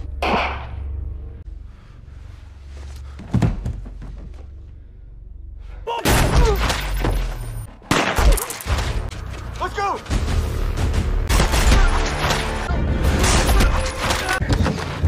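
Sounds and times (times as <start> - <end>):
low droning film score: 0.0 - 15.0
thuds: 3.2 - 4.4.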